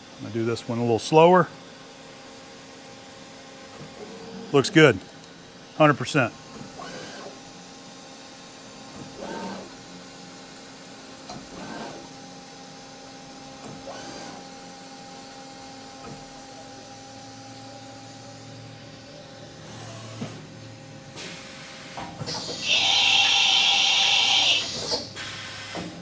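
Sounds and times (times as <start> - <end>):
drill cutting metal: 22.3 - 25.8.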